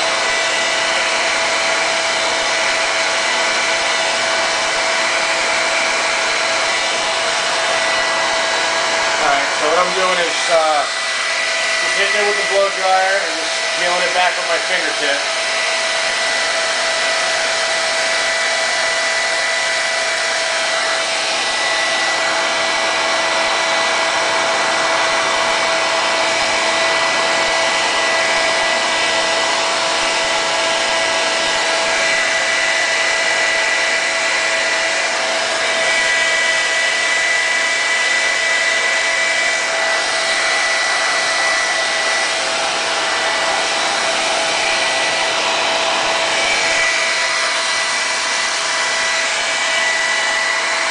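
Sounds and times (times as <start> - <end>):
hair dryer blowing air: 0.0 - 50.9.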